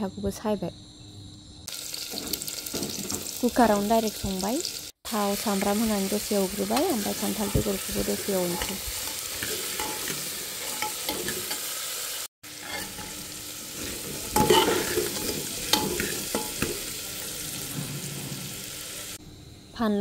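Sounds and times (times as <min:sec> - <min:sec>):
seeds sizzling in hot oil: 0:01.7 - 0:19.2
metal ladle scraping and clinking: 0:08.4 - 0:11.7, 0:12.6 - 0:13.2, 0:13.8 - 0:16.8.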